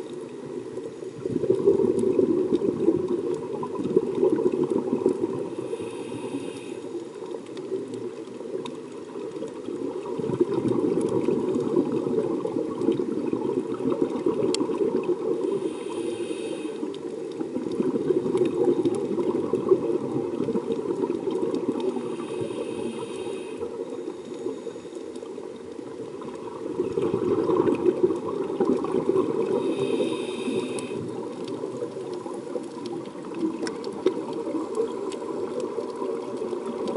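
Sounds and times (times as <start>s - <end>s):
exhaled bubbles rushing underwater: 0.0s - 6.4s, 7.2s - 16.0s, 16.6s - 36.9s
regulator hiss: 5.4s - 7.2s, 15.4s - 17.1s, 21.9s - 25.1s, 29.5s - 31.2s.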